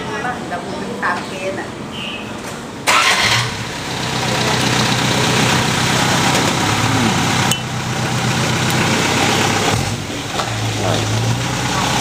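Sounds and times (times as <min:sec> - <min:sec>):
engine idling: 0:02.9 - 0:12.0.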